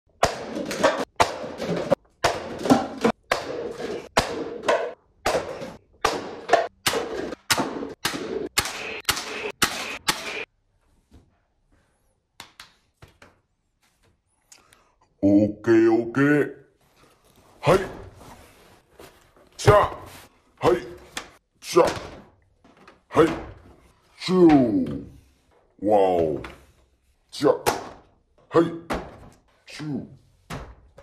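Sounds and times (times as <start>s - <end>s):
paper cups knocked over: 0.2s - 10.5s.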